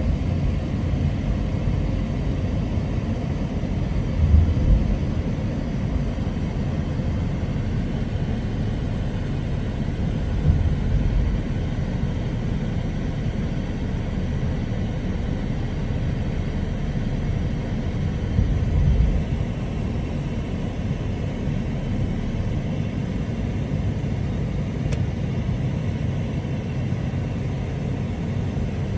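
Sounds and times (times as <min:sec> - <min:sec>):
car engine and tyres rumbling: 0:00.0 - 0:28.9.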